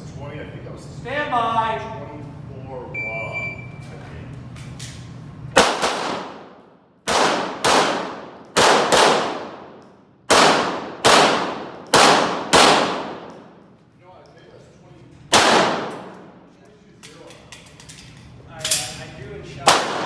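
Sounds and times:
pistol shots echoing indoors: 5.5s - 13.7s, 15.3s - 17.7s, 19.6s - 20.0s.

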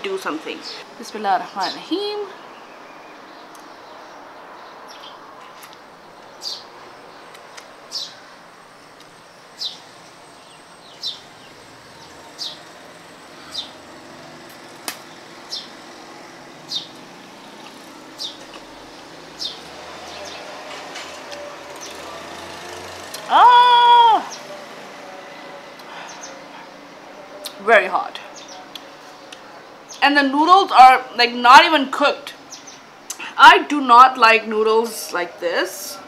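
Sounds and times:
bird chirping: 0.2s - 23.3s, 28.3s - 30.1s.

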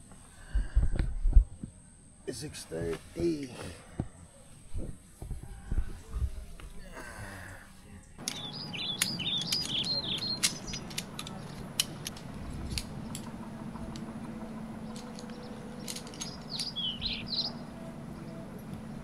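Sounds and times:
low steady hum: 0.0s - 19.0s
sharp clicks and knocks: 8.2s - 16.8s
small bird singing: 8.2s - 19.0s.

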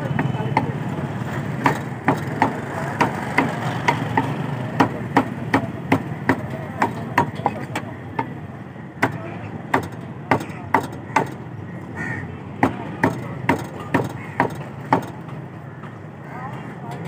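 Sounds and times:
cleaver chopping on wooden block: 1.6s - 8.4s, 9.0s - 11.4s, 12.6s - 15.2s.

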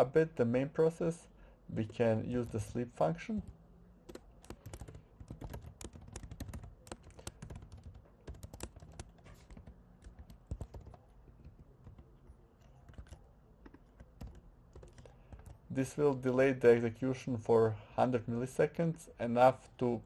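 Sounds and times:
computer keyboard typing: 3.4s - 15.7s.

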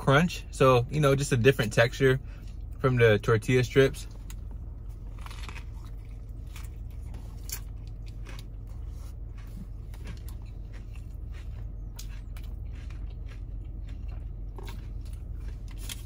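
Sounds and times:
steady low hum: 0.0s - 16.0s
man chewing crunchy food: 4.1s - 16.0s.

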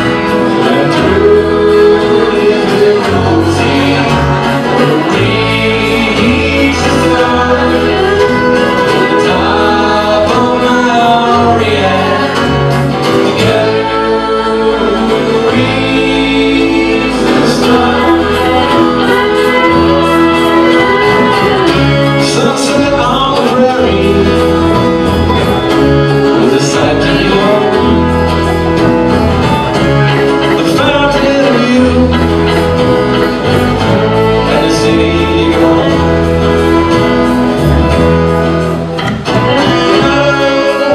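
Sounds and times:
saxophone: 0.0s - 10.6s, 12.3s - 23.0s, 32.1s - 40.9s
acoustic guitar strumming: 0.0s - 40.9s
upright bass low notes: 0.0s - 40.9s.

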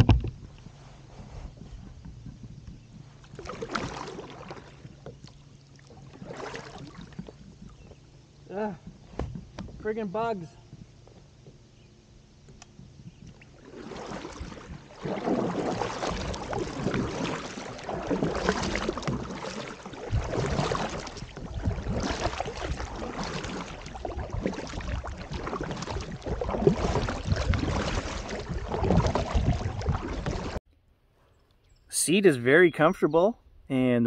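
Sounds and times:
kayak paddle splashing in water: 2.8s - 8.0s, 12.9s - 30.6s.

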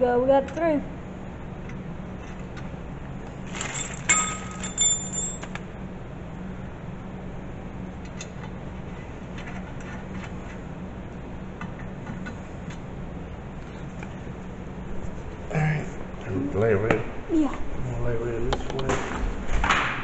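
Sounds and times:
steady low hum: 0.0s - 20.0s
small metal hardware clinking: 3.7s - 5.6s.

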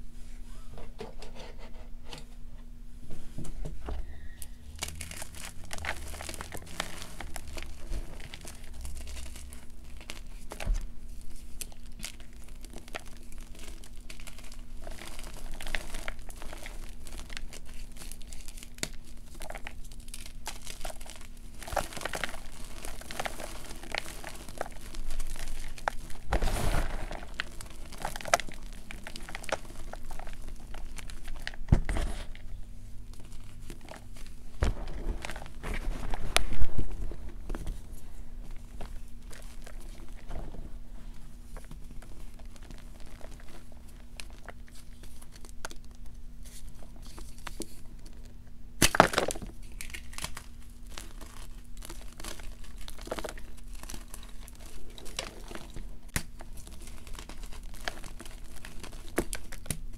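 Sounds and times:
chalk crunching by hand: 11.2s - 32.3s.

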